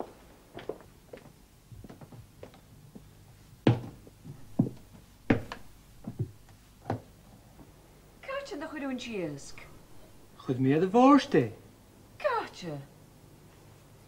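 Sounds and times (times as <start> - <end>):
objects knocking on kitchen counter: 3.7 - 7.0.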